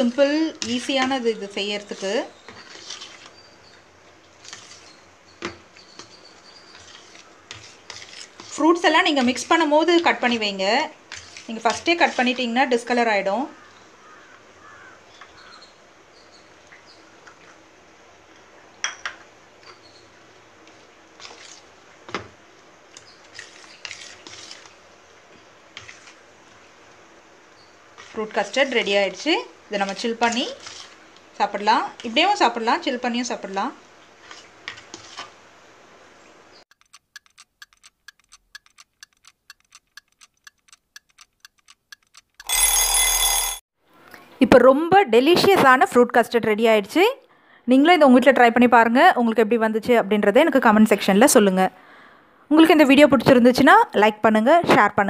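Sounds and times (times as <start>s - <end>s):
spoon stirring custard in bowl: 0.4s - 3.8s, 4.4s - 9.6s, 11.1s - 12.5s, 22.9s - 24.8s
sharp clicks: 36.7s - 42.5s
clock ticking: 36.7s - 42.8s.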